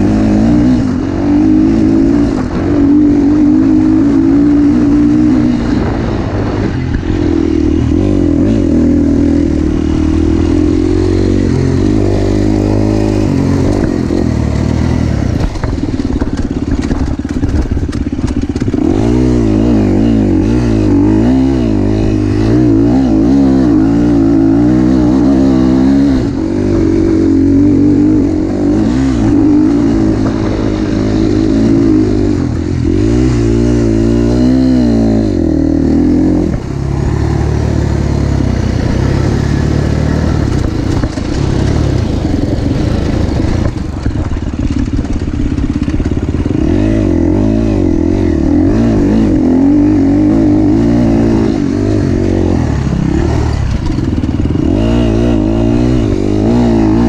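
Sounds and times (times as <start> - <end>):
motocross engine revving: 0.0 - 57.0
bike clattering over bumps: 15.4 - 18.8.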